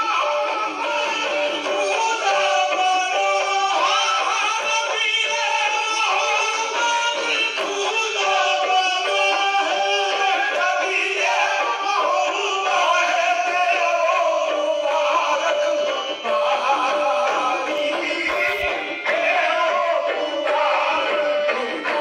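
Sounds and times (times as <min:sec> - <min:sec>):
instrumental accompaniment: 0:00.0 - 0:22.0
person singing: 0:00.0 - 0:22.0.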